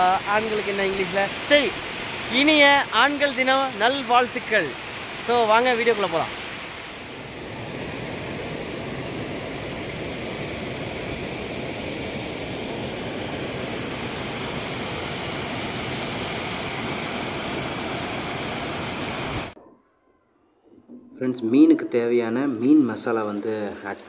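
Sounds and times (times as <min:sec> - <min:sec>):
waterfall over rock: 0:00.0 - 0:07.3, 0:10.0 - 0:19.6.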